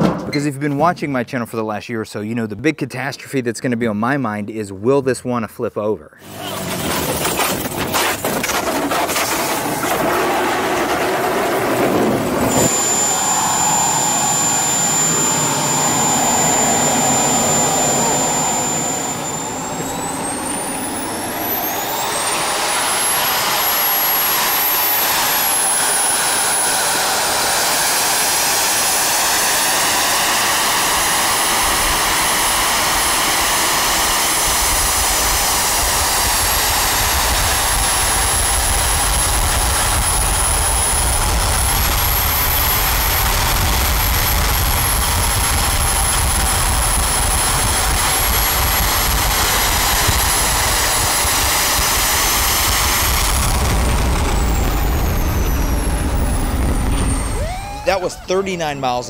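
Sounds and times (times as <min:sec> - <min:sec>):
turbojet engine whine: 0:06.2 - 0:59.0
exhaust rush: 0:09.1 - 0:59.0
low rumble: 0:11.8 - 0:22.7, 0:52.6 - 0:57.5.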